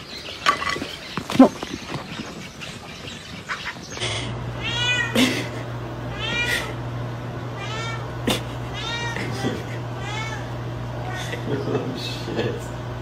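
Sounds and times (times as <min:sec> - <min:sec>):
low hum: 0:03.8 - 0:13.0
cat meowing: 0:04.6 - 0:05.2, 0:06.1 - 0:06.8, 0:07.6 - 0:11.4.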